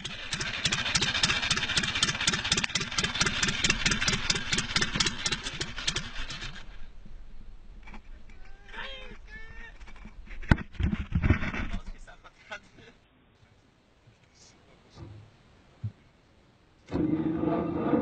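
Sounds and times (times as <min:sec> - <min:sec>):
old engine knocking: 0:00.0 - 0:06.7.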